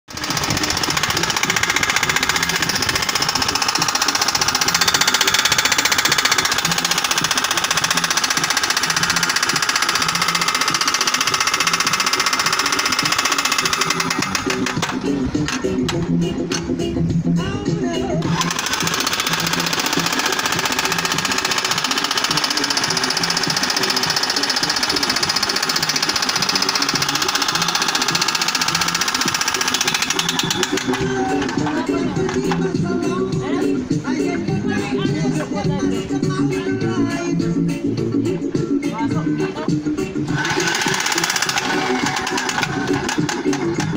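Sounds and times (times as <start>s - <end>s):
jackhammer hammering rocky ground: 0.1s - 16.2s, 18.2s - 32.7s, 40.3s - 43.9s.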